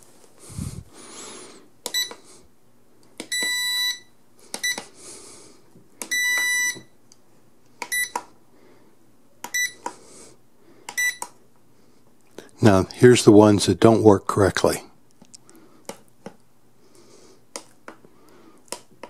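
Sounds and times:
transmitter buzzer beeping: 3.3 - 4.8, 6.1 - 6.9, 9.5 - 9.9, 10.9 - 11.3.

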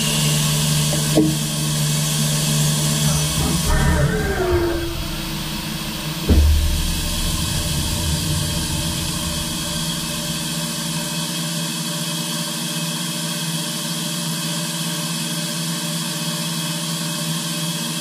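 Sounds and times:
machine hum with hiss: 0.0 - 18.0
low rumble: 3.0 - 11.5.

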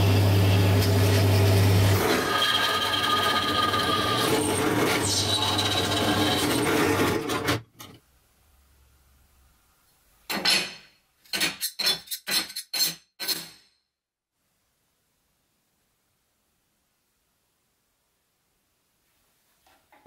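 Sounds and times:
drill press boring steel: 0.0 - 7.6.

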